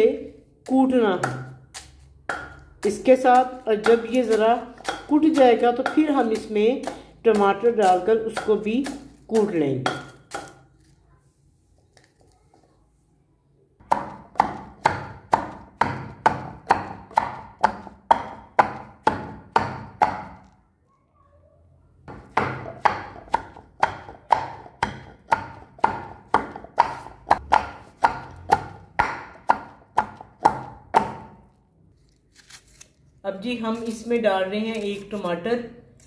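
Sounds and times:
pestle pounding in mortar: 0.7 - 10.6, 13.8 - 20.5, 22.1 - 31.4.

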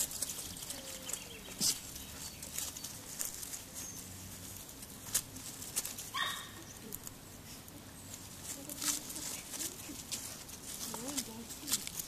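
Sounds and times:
puppies rustling in dry leaves: 0.0 - 12.0
puppy yip: 6.1 - 6.6.

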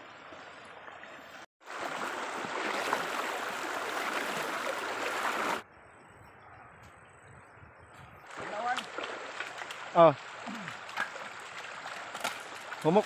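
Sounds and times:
faint flowing water: 0.0 - 5.7, 8.2 - 13.0
river rushing: 1.1 - 5.6.

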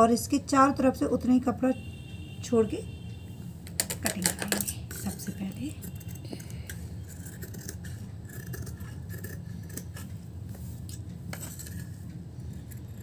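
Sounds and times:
steady low hum: 0.0 - 13.0
scissors snipping fabric: 3.9 - 10.2, 10.8 - 13.0.

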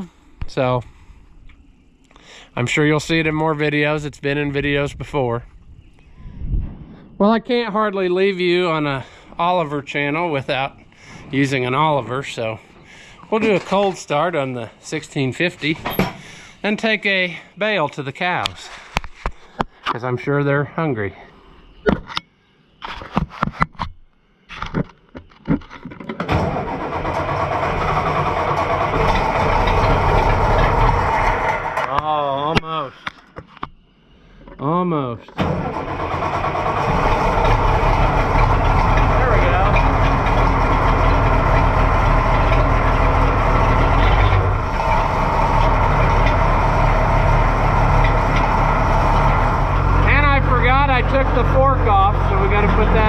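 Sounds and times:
diesel engine starting and running: 0.0 - 19.1, 26.1 - 33.2, 35.2 - 53.0
sharp clicks and knocks: 36.8 - 47.0.

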